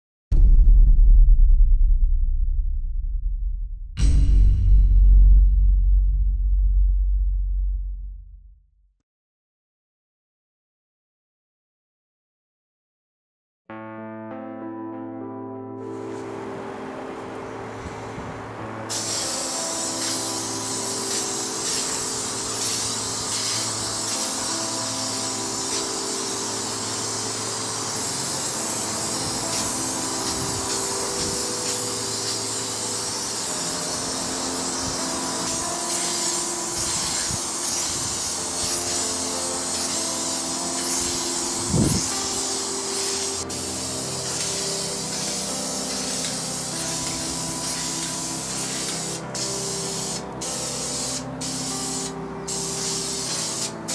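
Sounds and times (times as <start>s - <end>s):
low thump: 0.3s - 8.5s
spray paint can hissing: 18.9s - 53.9s.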